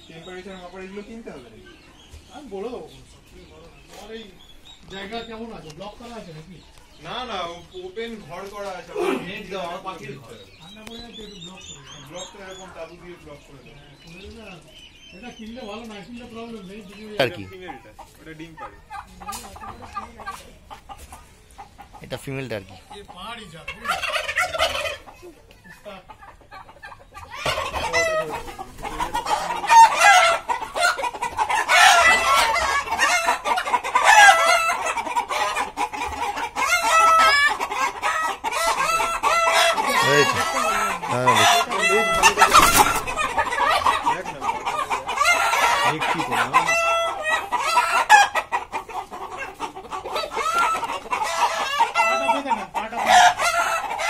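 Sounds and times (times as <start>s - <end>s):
chickens clucking: 0.0s - 54.0s
roosters crowing: 27.2s - 54.0s.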